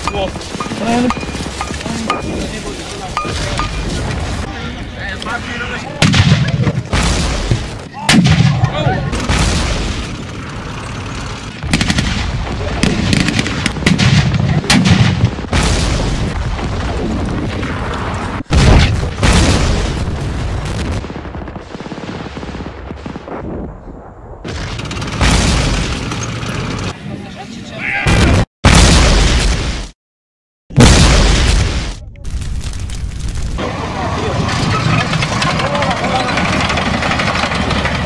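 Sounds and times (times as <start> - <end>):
rifle and machine-gun blanks firing: 0.0 - 2.2
pyrotechnic blasts: 0.0 - 26.8, 28.1 - 30.0, 30.7 - 38.0.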